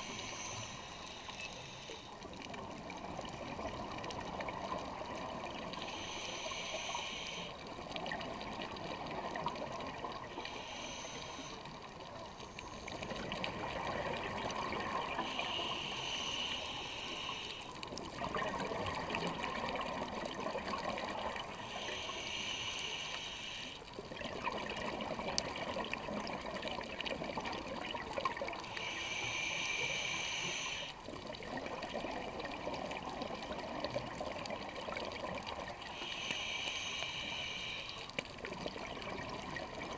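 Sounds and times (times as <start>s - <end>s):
regulator hissing inhale: 0.0s - 2.5s, 5.6s - 8.1s, 10.1s - 13.3s, 15.0s - 17.9s, 21.3s - 24.0s, 28.5s - 31.0s, 35.8s - 38.3s.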